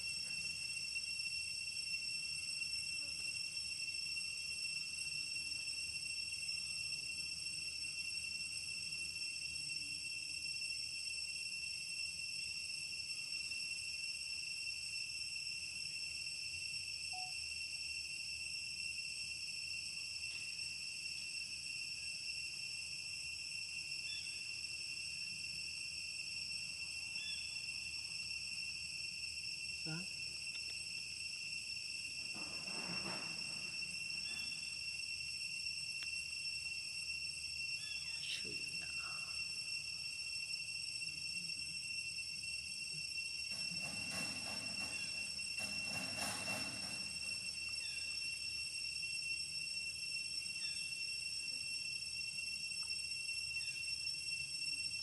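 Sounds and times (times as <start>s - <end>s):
insects droning: 0.0s - 55.0s.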